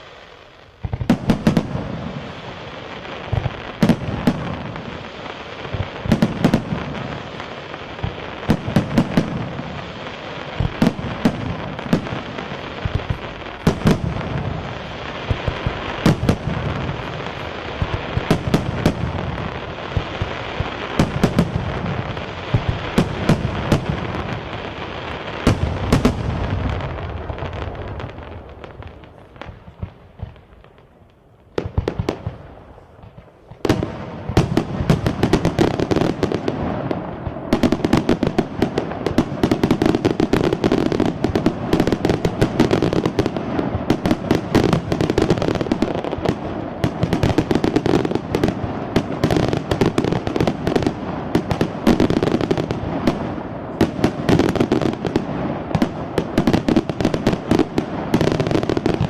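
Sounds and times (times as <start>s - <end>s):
fireworks bangs and crackling: 0.0s - 59.0s.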